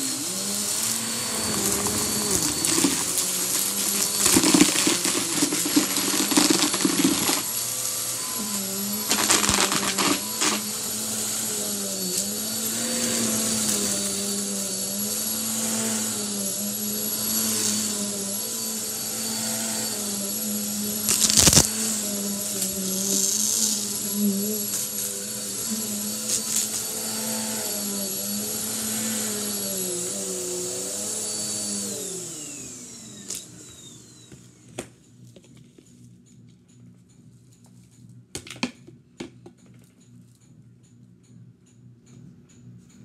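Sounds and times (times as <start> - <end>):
vacuum cleaner humming: 0.0 - 34.9
vacuum sucking up debris: 0.1 - 33.9.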